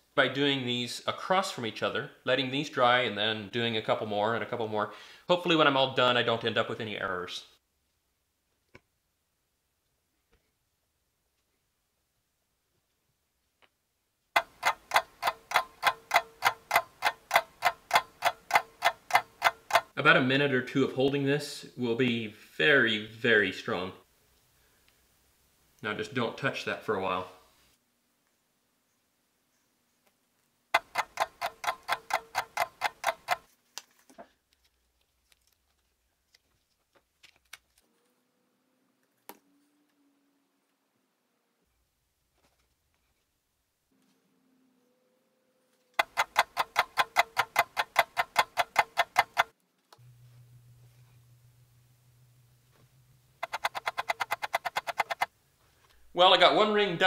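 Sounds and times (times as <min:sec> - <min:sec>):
clock ticking: 0:14.4 - 0:20.0, 0:30.8 - 0:33.4, 0:46.0 - 0:49.5, 0:53.4 - 0:55.3.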